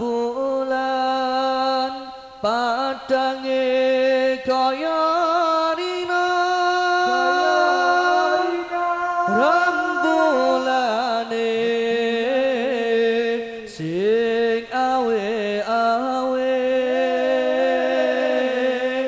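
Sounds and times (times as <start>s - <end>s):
men singing unaccompanied: 0.0s - 19.0s.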